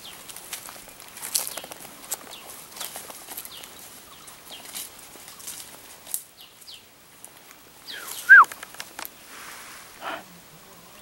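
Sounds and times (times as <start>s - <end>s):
footsteps crunching on dry leaves: 0.0s - 6.7s
loud rising and falling call: 7.9s - 8.5s.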